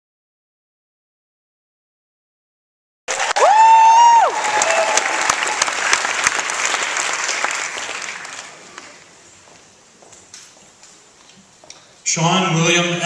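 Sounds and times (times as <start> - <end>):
high-pitched cheer: 3.1 - 6.2
audience applauding: 3.1 - 9.1.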